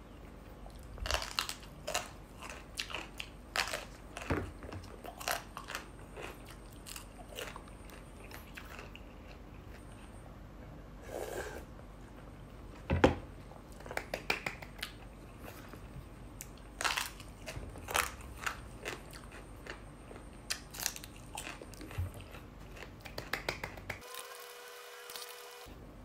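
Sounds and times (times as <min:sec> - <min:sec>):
person chewing noodles: 0:00.5 - 0:10.2, 0:13.7 - 0:23.7.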